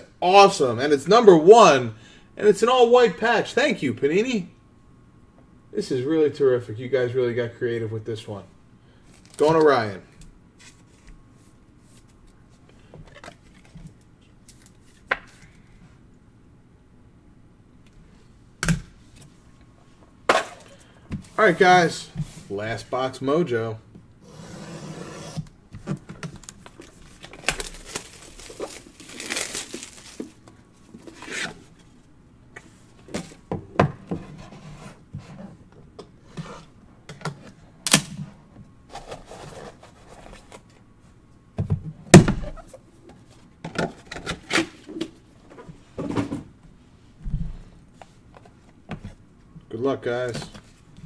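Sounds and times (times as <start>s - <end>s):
cardboard sliding and scraping: 24.2s - 25.4s.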